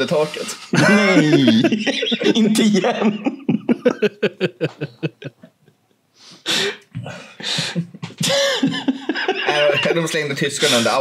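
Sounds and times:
person laughing: 0:00.8 - 0:05.8, 0:07.3 - 0:10.2
wheezy gasping breaths: 0:06.1 - 0:08.7.

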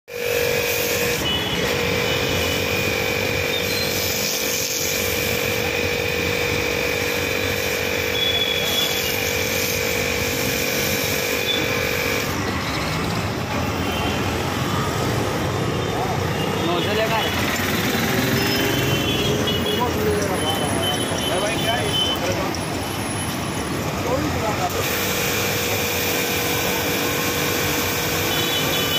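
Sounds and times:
pressure washer whine: 0:00.1 - 0:28.9
street traffic noise: 0:00.1 - 0:28.9
foam cannon spraying hiss: 0:03.7 - 0:05.6, 0:24.7 - 0:28.9.

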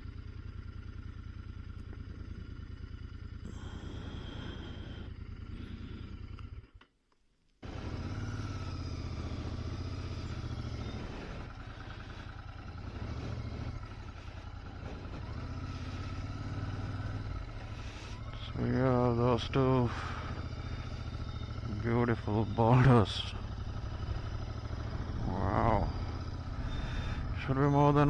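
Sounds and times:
motorcycle pulling away: 0:00.0 - 0:06.7, 0:07.6 - 0:28.0
motorcycle engine idling: 0:00.0 - 0:06.9, 0:07.6 - 0:28.0.

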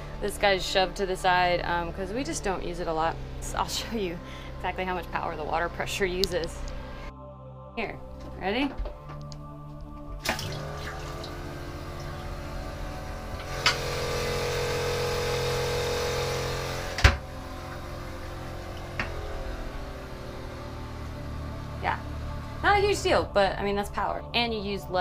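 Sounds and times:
faucet water running into sink: 0:10.2 - 0:15.0
pressure pump humming: 0:10.2 - 0:23.4.

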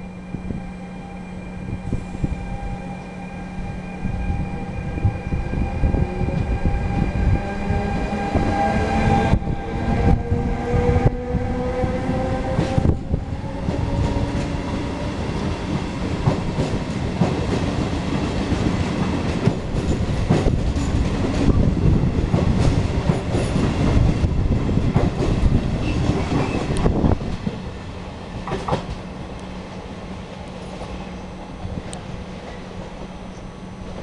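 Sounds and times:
train wheels clattering over rail joints: 0:16.2 - 0:21.7.

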